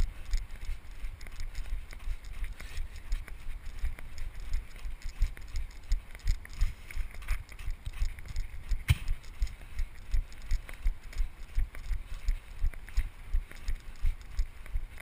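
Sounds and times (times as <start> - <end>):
sharp knock: 8.9 - 9.2.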